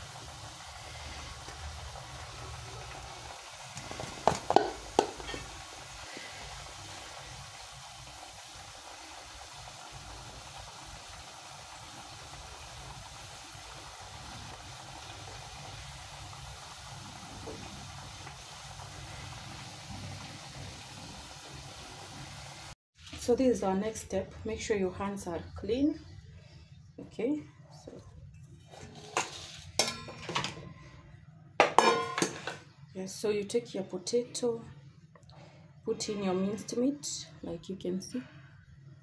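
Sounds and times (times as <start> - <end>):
metal bowl clinking: 28.8 - 30.5, 31.6 - 32.6.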